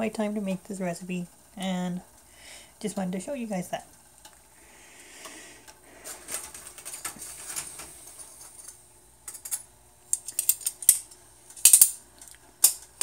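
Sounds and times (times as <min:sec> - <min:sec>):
metal tongs clicking on wire rack: 0:09.3 - 0:13.0.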